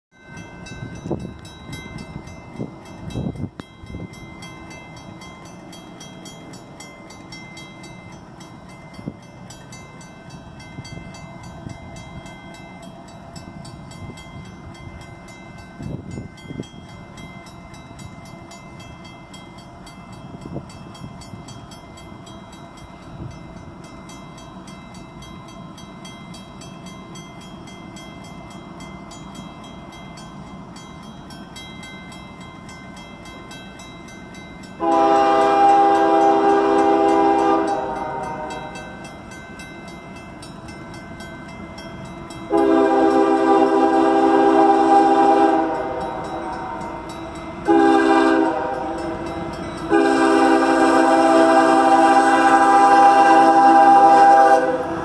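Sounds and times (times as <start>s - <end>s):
railroad crossing bells ringing: 0.1s - 55.0s.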